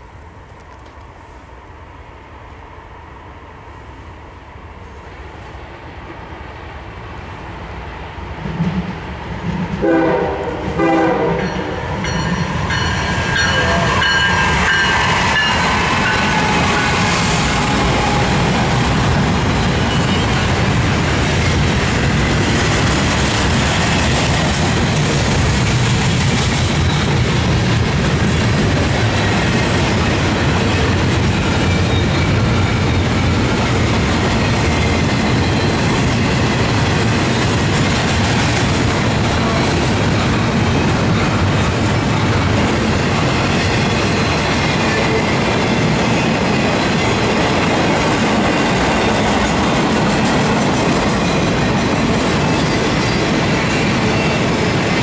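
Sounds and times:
freight train rumble: 0:00.0 - 0:55.0
wheels clickety-clack on rails: 0:08.4 - 0:10.4, 0:11.0 - 0:55.0
train horn blasts: 0:09.8 - 0:12.0, 0:13.3 - 0:18.5.

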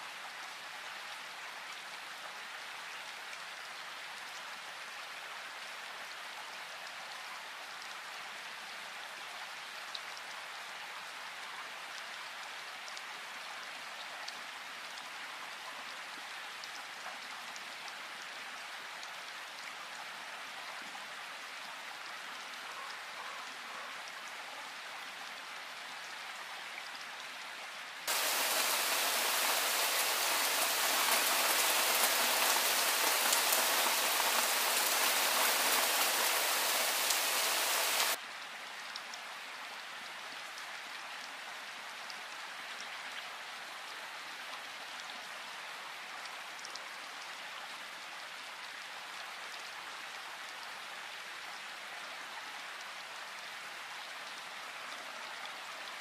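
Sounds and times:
bright heavy downpour: 0:00.0 - 0:56.0
steady rain hiss: 0:27.5 - 0:44.5.

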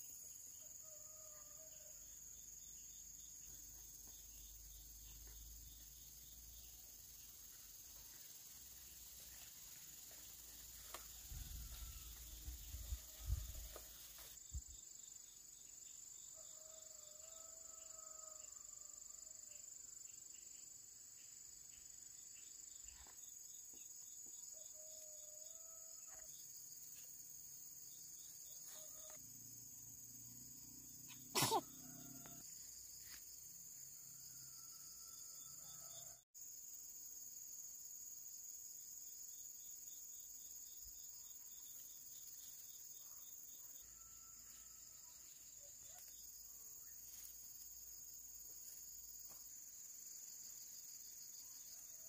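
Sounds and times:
high-pitched insect drone: 0:00.8 - 0:14.7.

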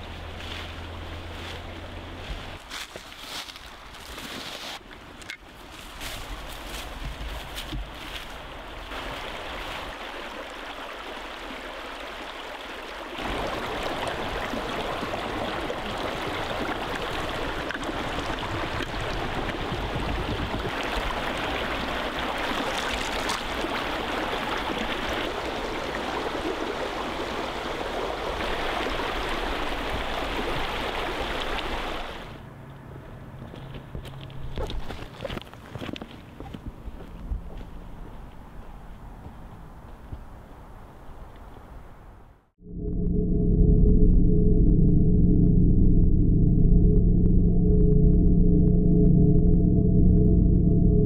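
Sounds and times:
creek water babbling: 0:08.0 - 0:32.4.

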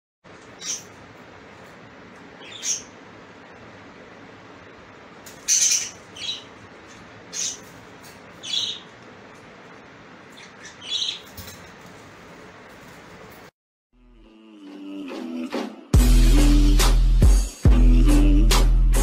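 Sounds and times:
parrot calls: 0:00.5 - 0:01.0, 0:02.4 - 0:03.0, 0:05.3 - 0:07.8, 0:08.4 - 0:08.9, 0:10.3 - 0:11.3.

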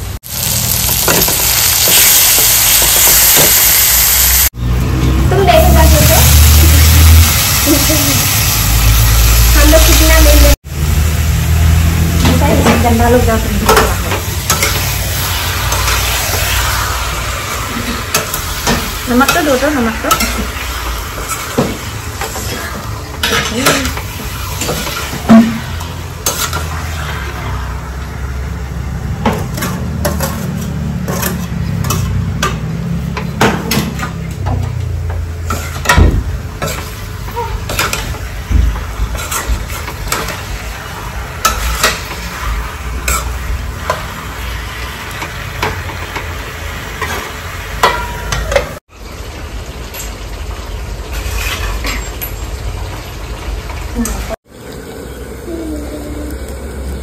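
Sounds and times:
chicken sizzling in a pan: 0:00.0 - 0:57.0
metal spoon scraping a pan: 0:12.4 - 0:16.6, 0:17.6 - 0:27.7, 0:29.2 - 0:34.4, 0:35.4 - 0:36.0, 0:36.6 - 0:38.2, 0:39.0 - 0:40.6, 0:41.4 - 0:44.2, 0:51.1 - 0:52.4.

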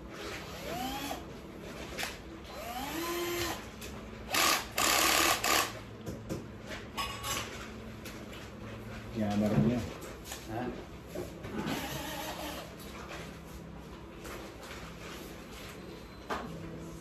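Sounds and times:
cordless drill whining: 0:00.5 - 0:01.2, 0:02.5 - 0:03.6, 0:04.3 - 0:05.7.

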